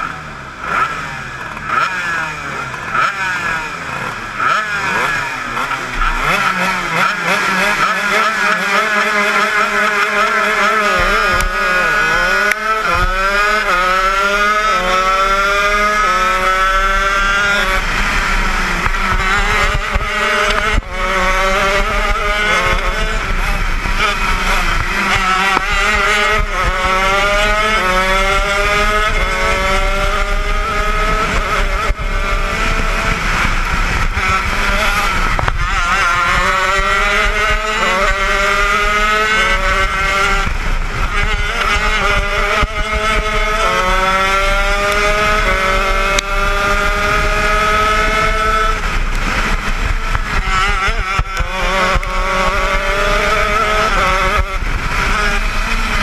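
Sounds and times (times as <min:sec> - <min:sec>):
kart engine revving: 0:00.0 - 0:56.0.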